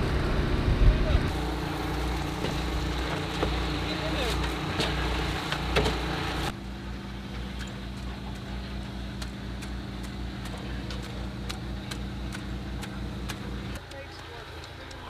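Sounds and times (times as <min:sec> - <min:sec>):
engine running with low pulsing: 0:00.0 - 0:15.0.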